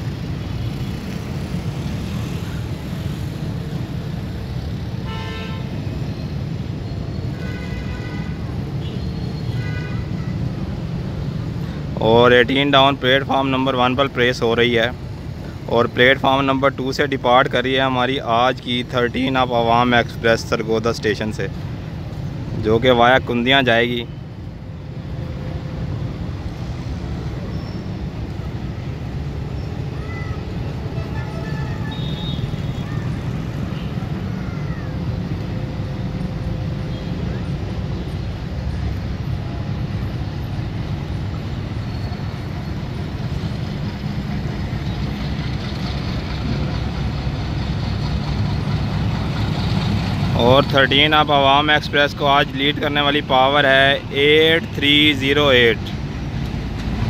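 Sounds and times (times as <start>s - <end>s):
diesel locomotive horn blasts: 5.0s - 5.7s
diesel locomotive engine rumbling: 24.0s - 57.0s.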